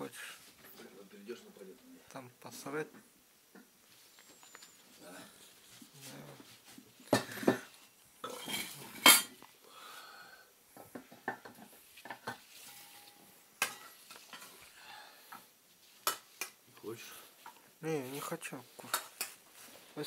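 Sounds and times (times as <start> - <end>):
dishes and cutlery clinking: 7.1 - 9.4, 10.8 - 14.6.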